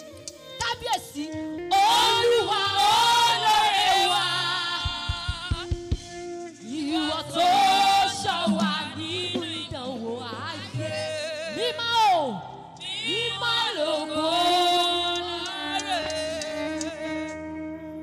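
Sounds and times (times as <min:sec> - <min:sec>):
gospel singing with band: 0:00.0 - 0:17.6
low drum hits: 0:04.8 - 0:06.2.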